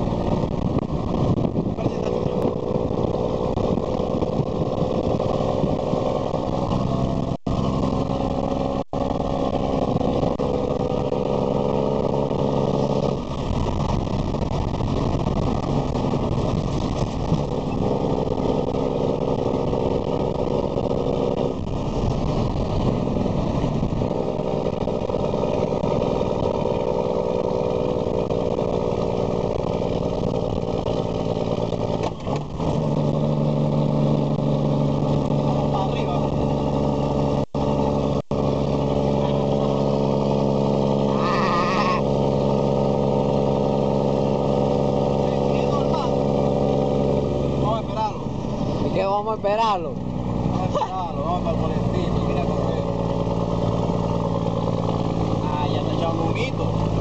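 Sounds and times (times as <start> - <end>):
diesel truck engine from cab: 0.0 - 57.0.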